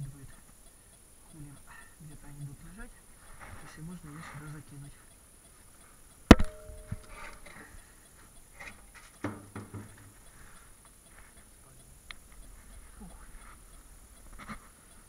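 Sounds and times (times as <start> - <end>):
thrown object knocking on landing: 6.3 - 6.7, 9.3 - 9.9
faint knocks: 9.2 - 10.1.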